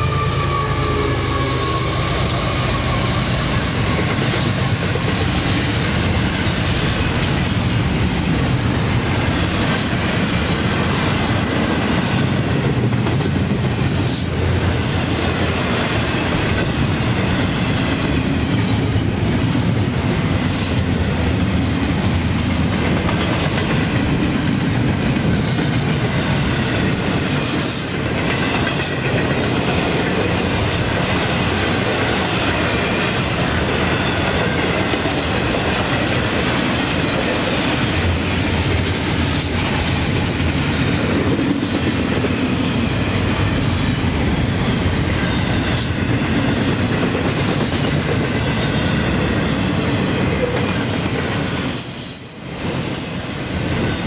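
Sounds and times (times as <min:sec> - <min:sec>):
wheel squeal: 0:00.0 - 0:03.9
freight train rumble: 0:00.0 - 0:54.0
wheels clicking over rail joints: 0:01.7 - 0:07.5, 0:21.7 - 0:43.5.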